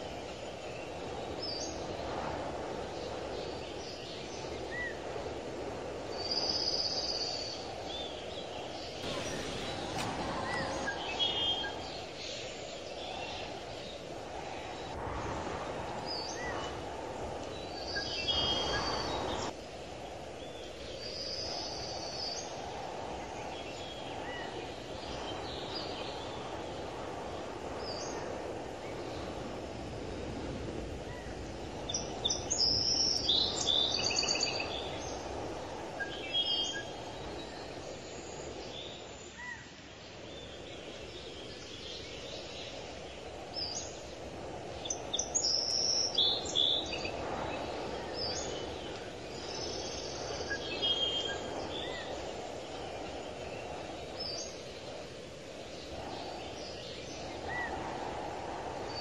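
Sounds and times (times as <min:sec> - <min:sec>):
low outdoor background noise: 0:00.0 - 0:59.0
birds chirping: 0:06.1 - 0:15.0, 0:15.8 - 0:29.6, 0:40.4 - 0:59.0.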